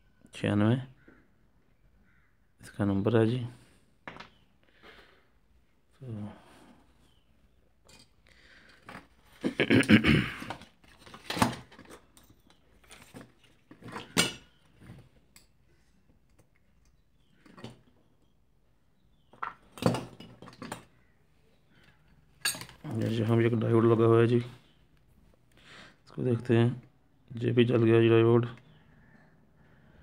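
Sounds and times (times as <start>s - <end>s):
tools knocking and rattling on workbench: 10.4s - 14.6s, 19.3s - 20.9s.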